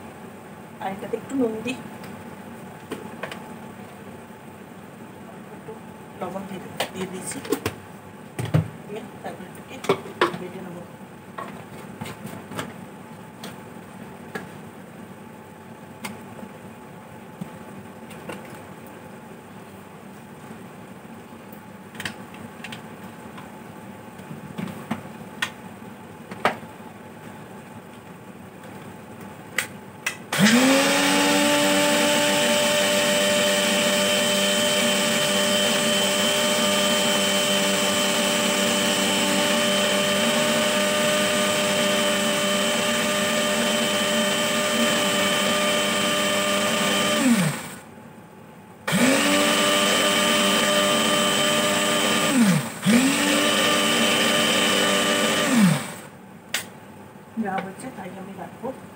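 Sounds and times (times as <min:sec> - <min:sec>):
mixer grinder motor whining: 0:30.3 - 0:47.8, 0:48.9 - 0:56.1.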